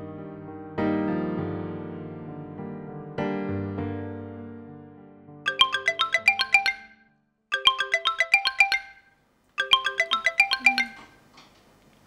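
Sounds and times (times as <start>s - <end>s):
soft piano music: 0.0s - 7.0s
phone ringtone: 5.5s - 11.3s.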